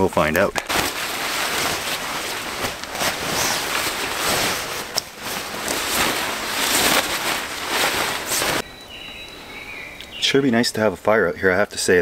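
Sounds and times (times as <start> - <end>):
nylon fabric rustling: 0.7 - 8.7.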